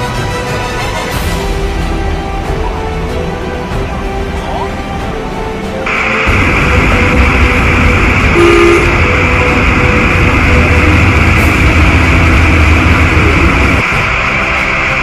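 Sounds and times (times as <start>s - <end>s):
floodwater rushing: 1.7s - 15.0s
deep rumble: 5.8s - 15.0s.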